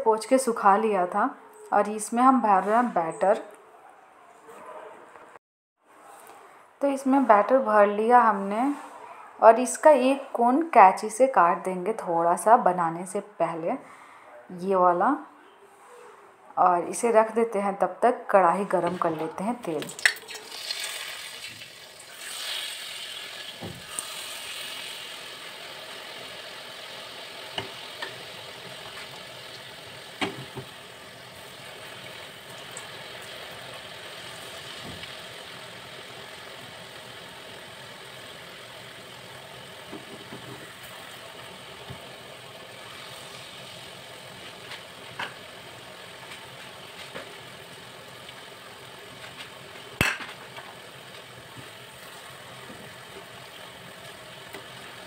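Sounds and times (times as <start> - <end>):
batter sizzling in hot oil: 19.9 - 55.0.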